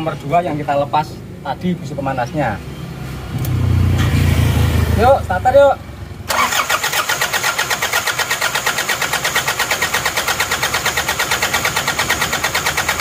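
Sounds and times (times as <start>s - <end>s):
diesel engine cranking on starter: 6.3s - 13.0s.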